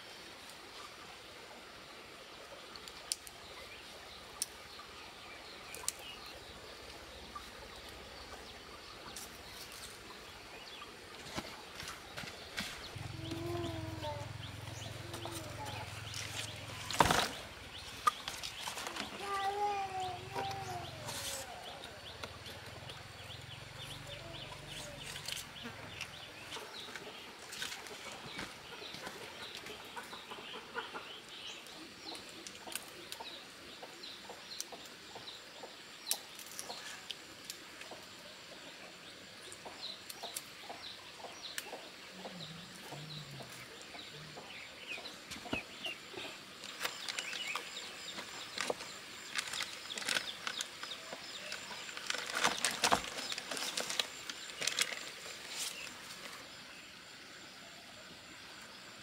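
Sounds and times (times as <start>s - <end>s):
rustling of leaf strips: 6.7s - 23.2s, 23.8s - 29.8s, 45.2s - 56.6s
chickens clucking: 25.6s - 31.3s.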